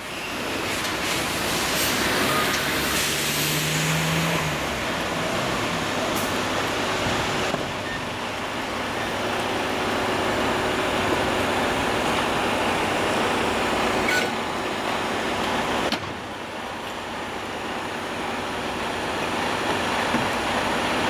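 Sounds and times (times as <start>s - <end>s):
heavy vehicle rolling past: 0.4s - 15.9s.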